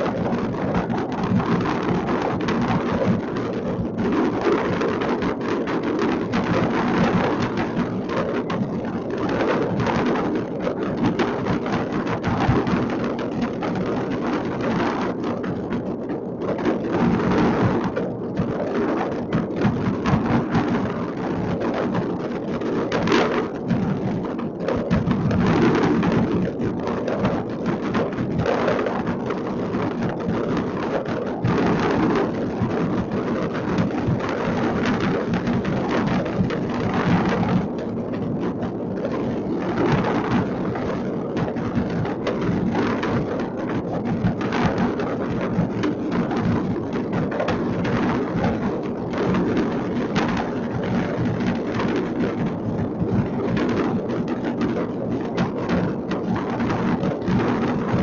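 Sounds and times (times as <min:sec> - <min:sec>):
fireworks crackling and banging: 0:39.9 - 0:48.6.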